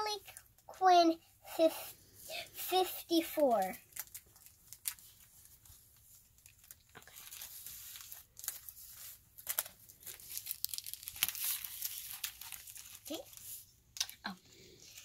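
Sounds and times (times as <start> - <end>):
comic books rustling and crinkling: 3.1 - 14.2.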